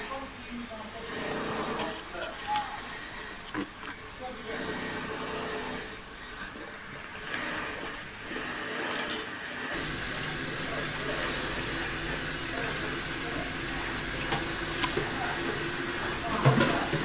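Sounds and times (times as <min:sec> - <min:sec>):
fish sizzling in hot oil: 0:09.8 - 0:17.0.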